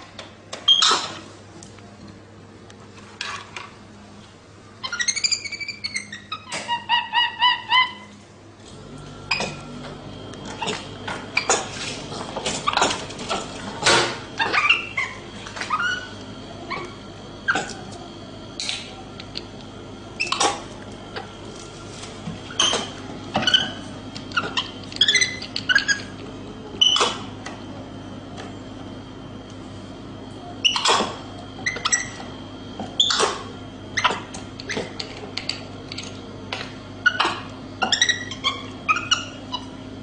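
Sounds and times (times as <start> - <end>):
monkey chirping and squeaking: 4.8 - 8.1, 14.4 - 16.1, 22.5 - 26.1, 26.8 - 27.1, 30.6 - 31.0, 31.6 - 32.2, 33.0 - 33.2, 34.0 - 34.8, 37.0 - 39.7.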